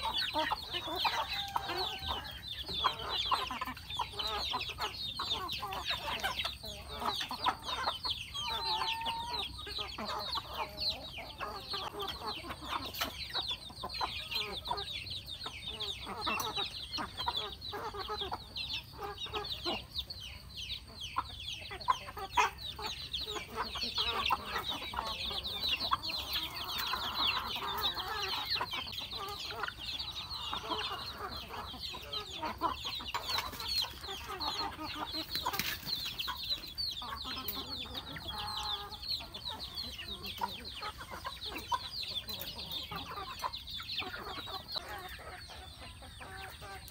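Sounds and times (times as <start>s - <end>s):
chicks peeping: 0.0s - 46.9s
hens and roosters clucking: 0.0s - 46.9s.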